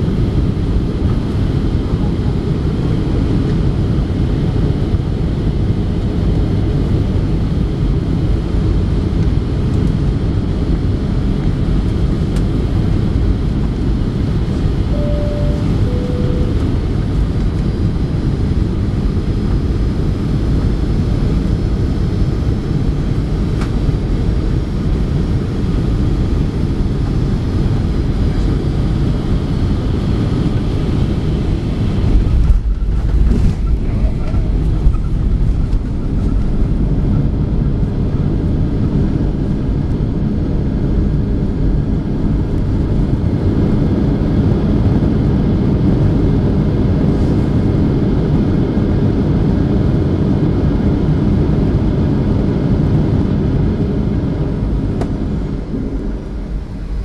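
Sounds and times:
airplane cabin engine roar: 0:00.0 - 0:57.0
two-note falling chime: 0:14.9 - 0:16.9.

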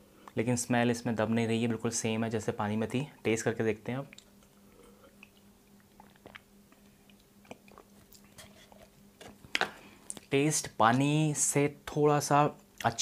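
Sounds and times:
faint steady hum: 0:00.0 - 0:13.0
mouth smacks: 0:04.1 - 0:10.3
man sipping and swallowing: 0:04.2 - 0:10.3.

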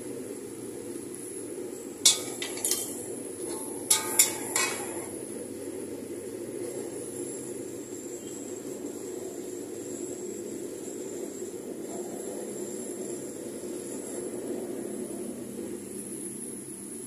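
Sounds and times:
metal spatula clanging on wok: 0:02.1 - 0:05.1.

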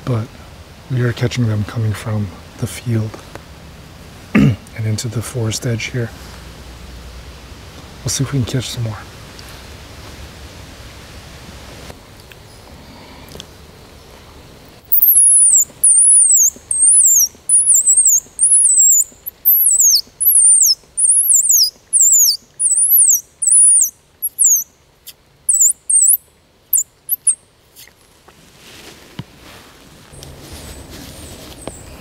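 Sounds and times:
high-pitched squirrel call squeals: 0:14.9 - 0:24.7, 0:25.5 - 0:27.4.

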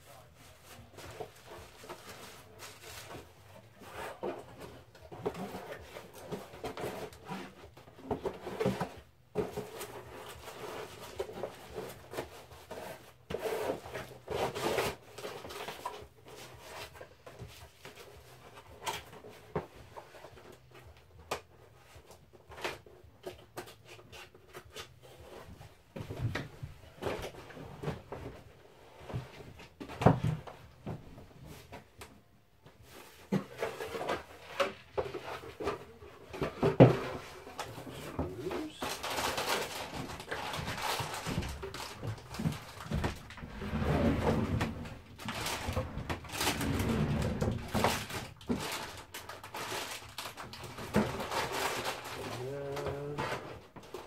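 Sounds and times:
rummaging through boxes: 0:00.0 - 0:54.0.

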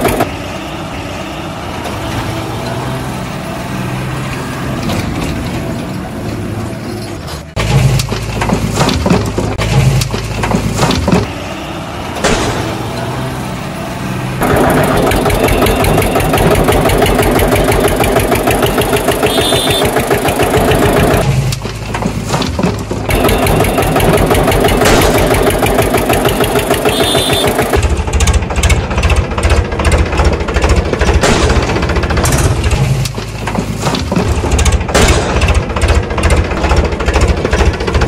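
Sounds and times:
tractor engine chugging: 0:14.4 - 0:22.0, 0:22.7 - 0:38.0.

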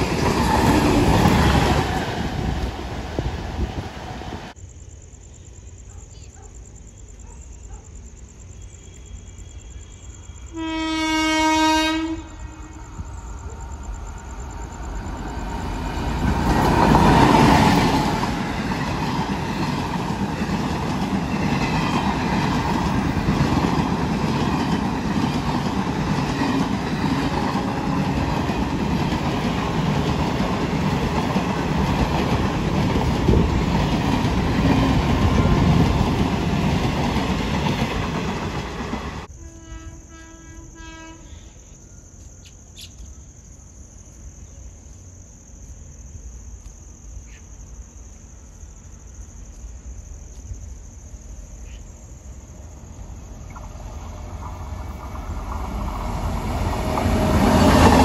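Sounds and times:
train rushing past: 0:00.0 - 0:04.6, 0:10.5 - 0:40.0, 0:52.2 - 0:58.0
train horn blast: 0:10.5 - 0:12.9, 0:39.3 - 0:41.5.

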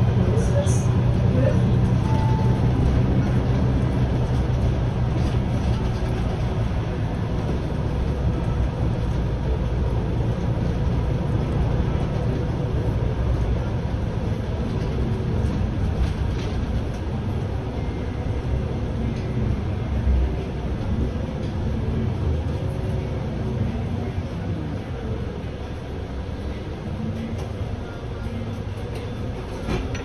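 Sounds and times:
bus engine rumble: 0:00.0 - 0:30.0.

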